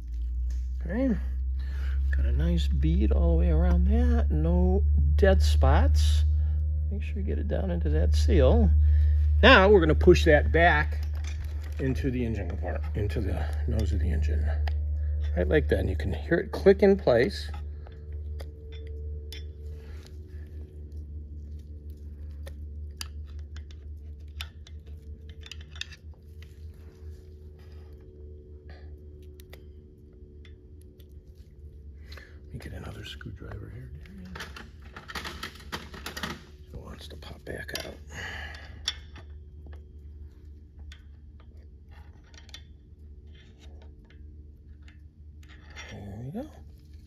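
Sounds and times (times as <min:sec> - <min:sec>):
low steady hum: 0:00.0 - 0:47.0
metal tool clicks and scrapes: 0:22.3 - 0:26.7.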